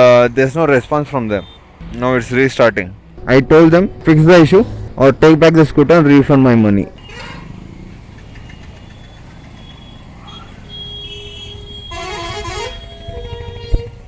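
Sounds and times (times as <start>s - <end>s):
road traffic rumble: 0.0s - 14.0s
vehicle horn: 10.3s - 14.0s
loud horn honk: 10.7s - 14.0s.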